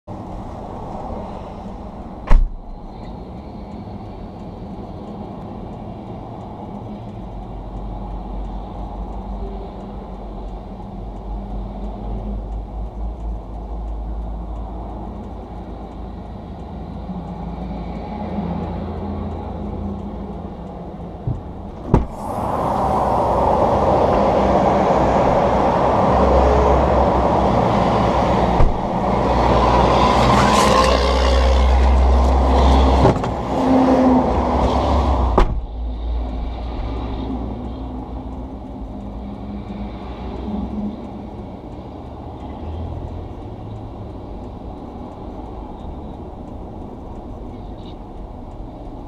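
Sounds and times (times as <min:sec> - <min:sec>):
highway traffic rushing past: 0:00.1 - 0:49.0
car hatch clunking: 0:02.2 - 0:02.8, 0:21.3 - 0:22.2, 0:28.6 - 0:28.9, 0:35.4 - 0:35.6.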